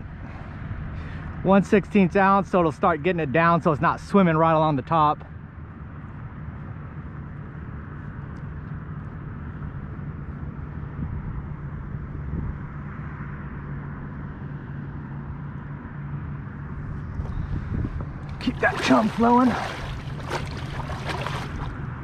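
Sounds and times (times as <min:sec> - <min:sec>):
distant motor humming: 0:16.4 - 0:22.0
water noise: 0:17.0 - 0:22.0.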